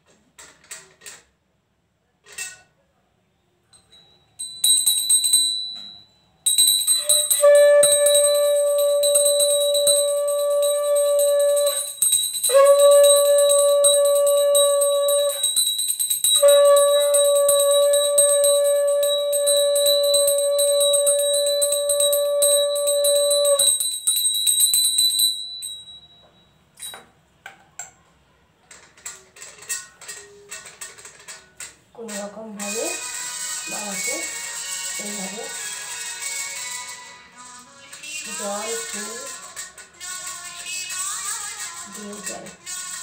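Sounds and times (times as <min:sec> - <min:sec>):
hand bell ringing: 0:03.8 - 0:27.1
conch shell blasts: 0:06.9 - 0:23.9.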